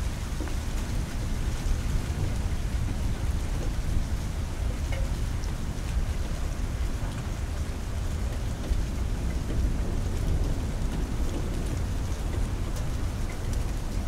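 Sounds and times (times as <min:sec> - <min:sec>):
steady rain: 0:00.0 - 0:14.0.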